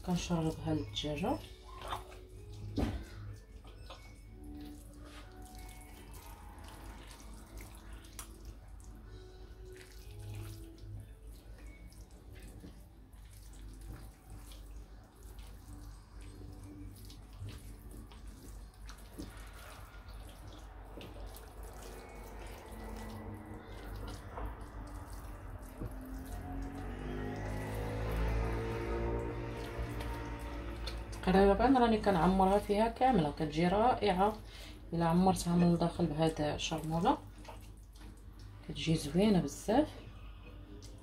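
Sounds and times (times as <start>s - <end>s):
hands squelching raw chicken: 0.4s - 31.2s
small wet smacks: 1.4s - 4.1s, 5.1s - 9.0s, 36.8s - 38.6s.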